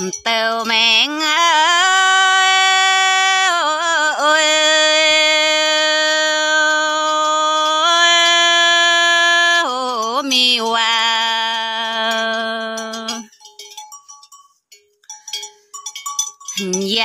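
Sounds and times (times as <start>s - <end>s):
unaccompanied folk singing: 0.0s - 13.3s.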